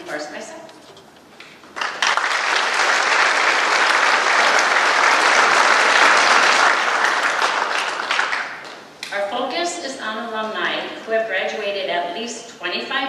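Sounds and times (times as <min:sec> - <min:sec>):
audience applause: 0:01.7 - 0:08.8.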